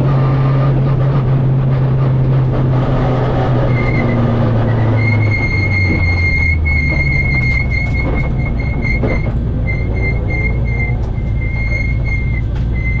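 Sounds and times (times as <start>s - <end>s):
car engine at low revs: 0.0s - 9.7s.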